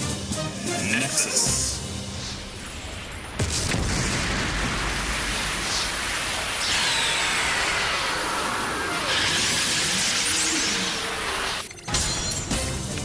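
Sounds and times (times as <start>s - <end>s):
dense rush of noise: 2.0s - 9.6s
screeching monster cry: 6.6s - 11.6s.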